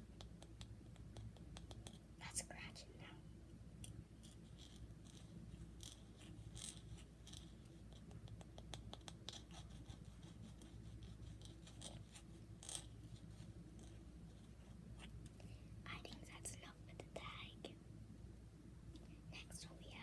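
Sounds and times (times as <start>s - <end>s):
close-miked scratching: 4.2s - 17.3s.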